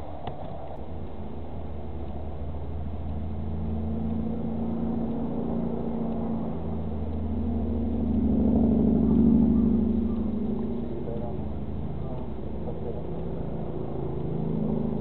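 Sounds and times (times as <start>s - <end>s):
motorboat engine humming: 0.0s - 15.0s.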